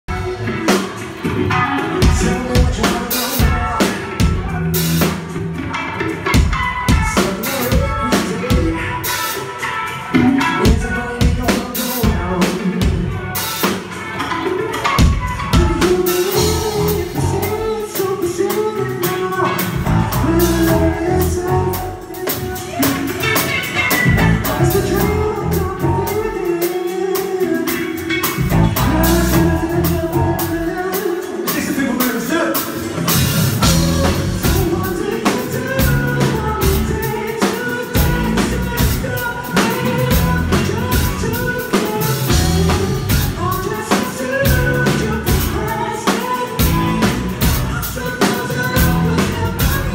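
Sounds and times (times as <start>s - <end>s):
rock band playing live: 0.0s - 49.9s
person singing: 0.1s - 49.9s.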